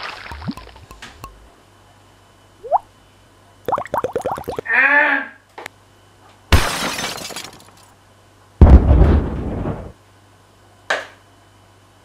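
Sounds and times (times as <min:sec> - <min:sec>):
glass crashing: 0:06.5 - 0:07.9.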